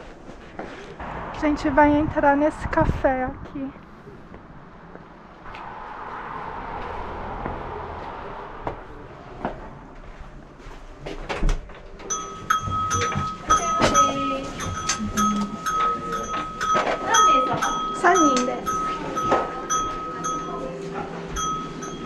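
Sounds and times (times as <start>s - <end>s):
chiming tune: 12.1s - 22.0s.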